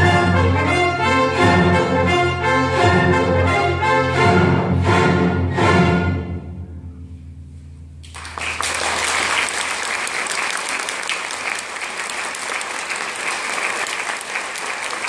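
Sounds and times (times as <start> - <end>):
audience applause: 8.1 - 15.0.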